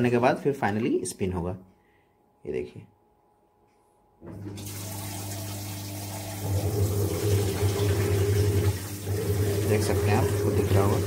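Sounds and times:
washing machine motor hum: 0:04.2 - 0:11.0
water spraying into washing machine tub: 0:04.3 - 0:11.0.

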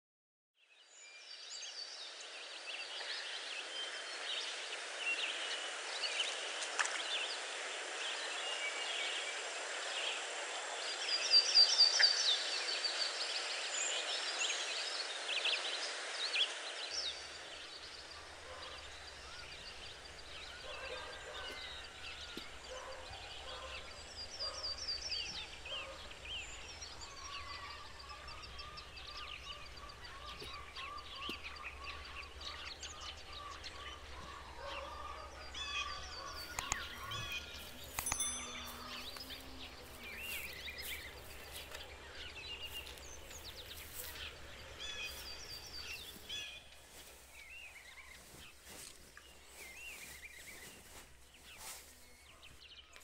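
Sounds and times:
background hiss: 0:00.9 - 0:30.1
birds chirping: 0:01.0 - 0:53.0.

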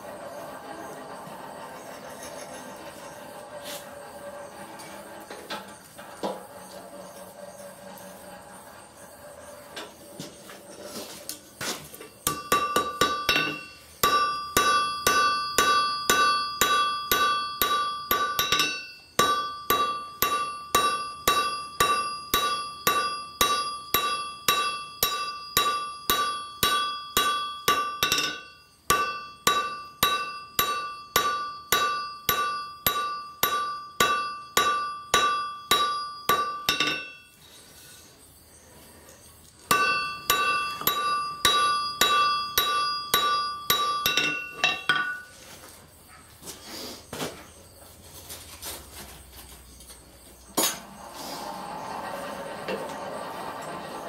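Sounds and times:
anvil ringing: 0:12.2 - 0:37.4, 0:39.7 - 0:45.3
hammer striking metal on anvil: 0:12.2 - 0:37.4, 0:39.7 - 0:45.3.

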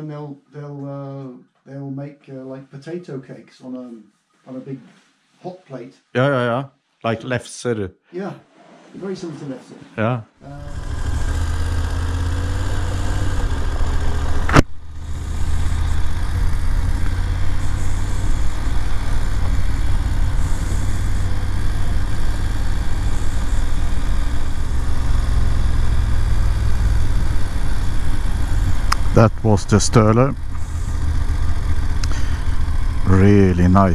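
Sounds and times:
motorcycle engine running: 0:10.4 - 0:33.9
sharp click: 0:14.5 - 0:14.7.

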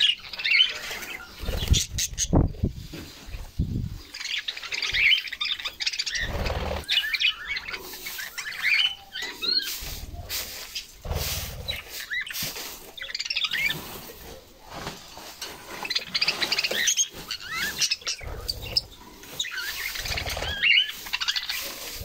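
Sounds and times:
budgerigars chirping and warbling: 0:00.0 - 0:11.0, 0:11.6 - 0:13.8, 0:15.7 - 0:22.0
wings fluttering: 0:00.8 - 0:02.6, 0:06.1 - 0:07.1, 0:15.8 - 0:22.0.

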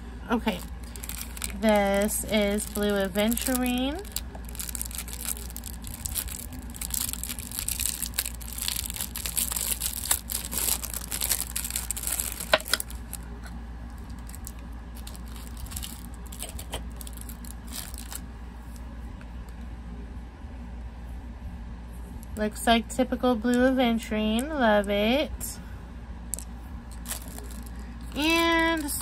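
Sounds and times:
packaging crinkling: 0:00.4 - 0:18.2, 0:26.9 - 0:29.0.

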